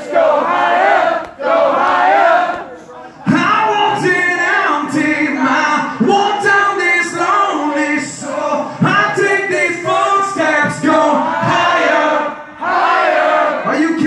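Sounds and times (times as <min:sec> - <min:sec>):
man singing into a microphone: 0:03.2 - 0:12.4.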